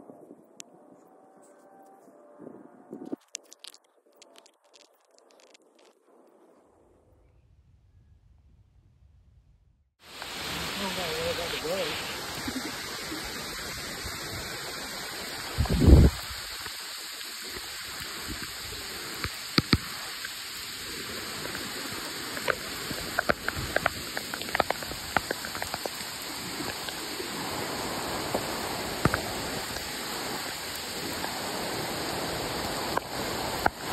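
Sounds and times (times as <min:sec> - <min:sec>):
rain hissing in forest: 0:10.0 - 0:33.9.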